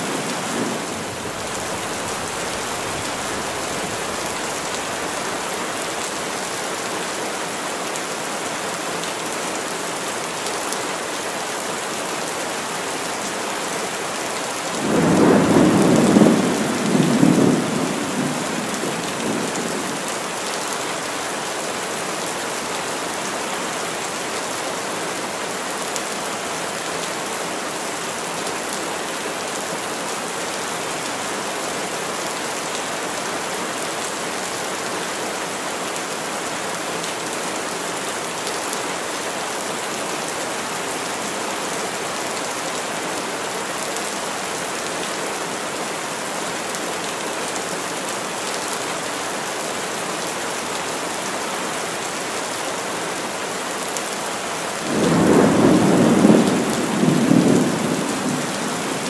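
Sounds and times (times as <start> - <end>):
heavy rain: 0.0 - 59.0.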